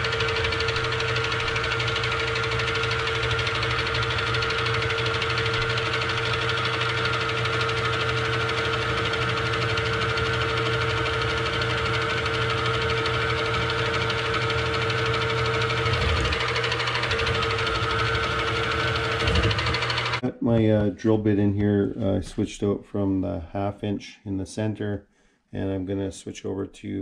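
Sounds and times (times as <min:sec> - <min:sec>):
milling machine drilling metal: 0:00.0 - 0:20.2.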